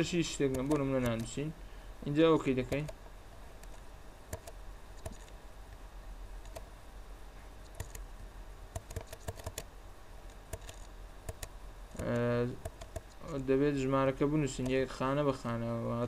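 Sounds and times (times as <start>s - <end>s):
faint low hum: 0.0s - 16.0s
keyboard and mouse clicks: 0.5s - 1.4s, 2.6s - 3.0s, 3.6s - 5.4s, 6.4s - 6.7s, 7.6s - 8.1s, 8.7s - 9.7s, 10.3s - 13.4s.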